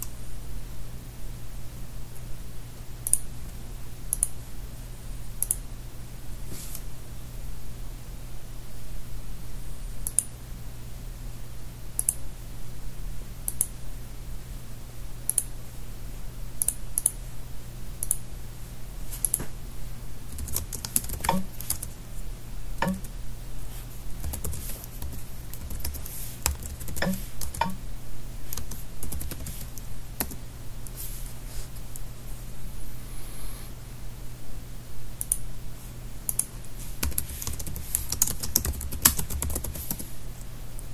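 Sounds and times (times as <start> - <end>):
low steady hum: 0.0 - 40.9
keyboard typing: 20.3 - 22.0, 22.8 - 23.2, 24.2 - 27.8, 28.5 - 30.4, 36.3 - 40.1.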